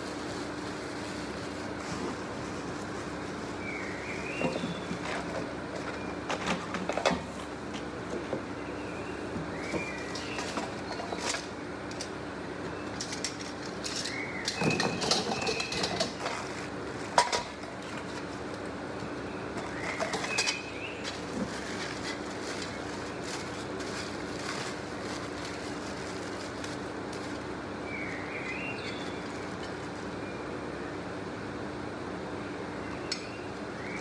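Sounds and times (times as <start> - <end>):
plastic wrapping crinkling: 0.0 - 4.3, 21.0 - 27.5
steady low hum: 0.0 - 34.0
bird chirping: 3.6 - 5.0.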